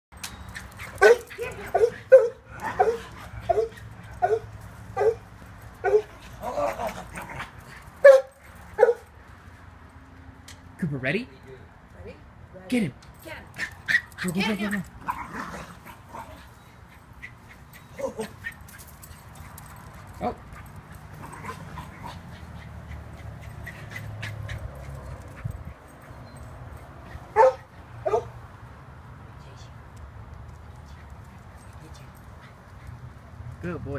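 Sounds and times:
small dog barking: 1.0s - 5.2s, 8.0s - 9.0s, 27.3s - 28.4s.

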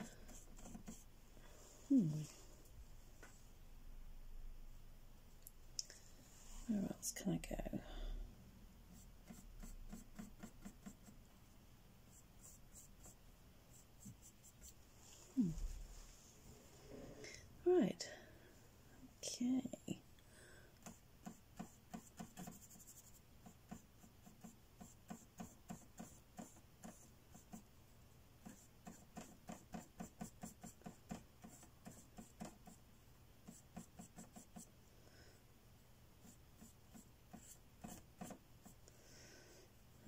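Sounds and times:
paintbrush tapping: 20.8s - 27.7s, 28.4s - 32.8s, 33.4s - 34.7s.

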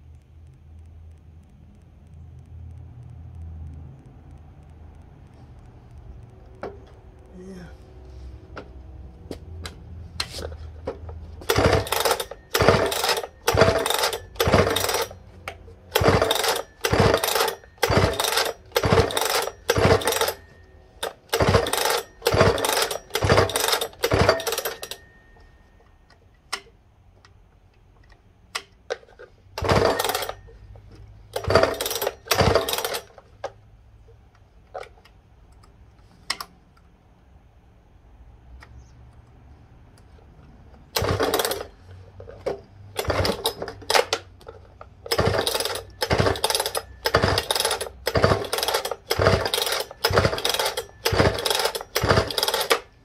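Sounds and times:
recoil starter cranking saw engine: 10.3s - 25.2s, 29.6s - 30.6s, 31.3s - 33.2s, 40.9s - 44.3s, 45.0s - 53.0s.

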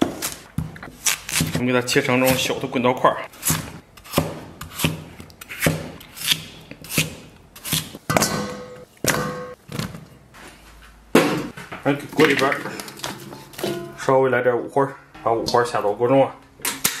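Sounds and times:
cleaver chopping on wooden block: 3.4s - 9.4s
metal bowl ringing: 13.6s - 14.1s.

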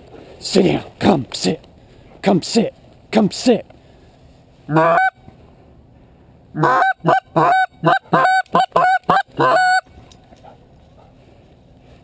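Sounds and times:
goose honking: 4.7s - 5.2s, 6.6s - 9.8s.

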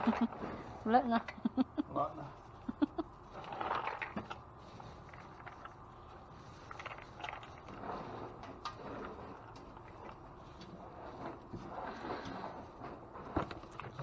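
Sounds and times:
plastic bag rustling: 2.8s - 14.0s
dry kibble rattling: 3.4s - 7.9s.

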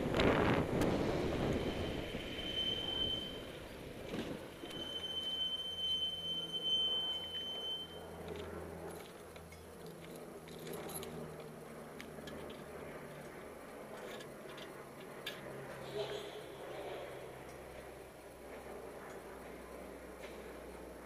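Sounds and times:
high-pitched electronic beep: 1.7s - 3.5s, 4.7s - 8.0s.

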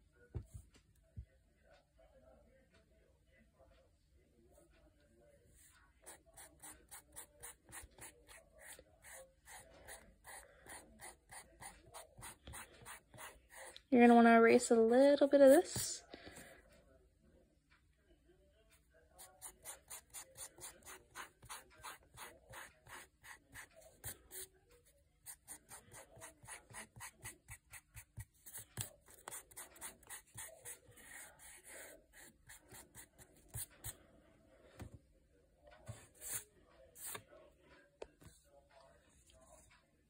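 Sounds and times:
eraser rubbing on paper: 19.3s - 24.5s.

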